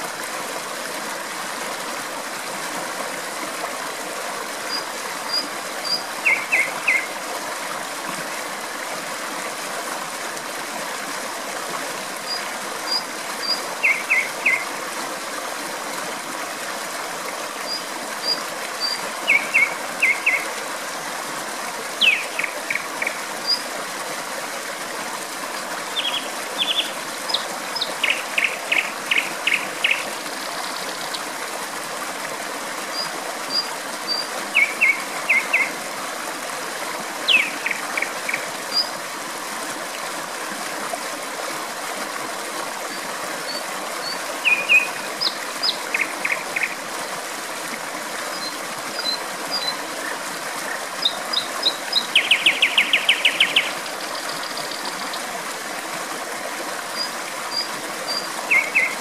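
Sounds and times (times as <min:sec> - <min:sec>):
flowing water rushing: 0:00.0 - 0:59.0
nightingale singing: 0:04.7 - 0:07.1, 0:12.9 - 0:14.6, 0:17.7 - 0:20.4, 0:22.0 - 0:23.6, 0:26.0 - 0:30.0, 0:33.5 - 0:35.7, 0:37.3 - 0:38.1, 0:44.0 - 0:46.7, 0:51.0 - 0:55.0, 0:57.5 - 0:59.0.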